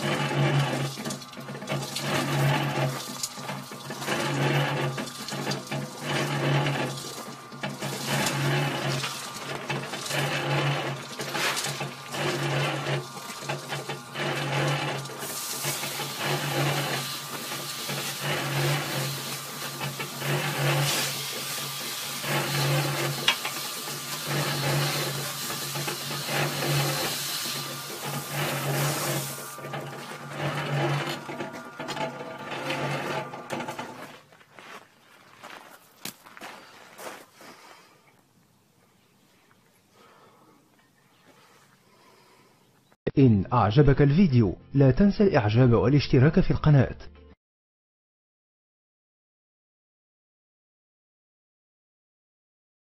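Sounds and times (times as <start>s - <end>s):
electric cement mixer running: 0.0s - 34.7s.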